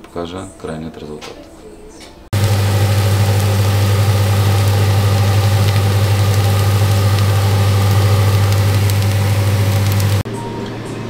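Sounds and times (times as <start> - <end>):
appliance humming: 2.3 - 10.3
constant hiss: 2.4 - 10.2.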